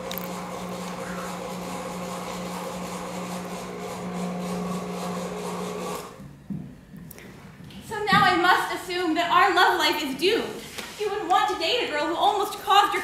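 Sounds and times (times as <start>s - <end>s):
device low hum: 0.0s - 4.9s.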